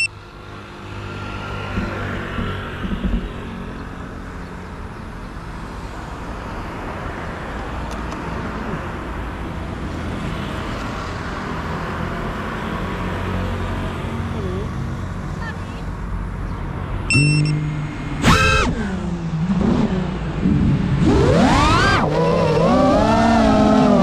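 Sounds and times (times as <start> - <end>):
road traffic with engine hum: 0.0 - 24.0
knocks: 1.7 - 3.7.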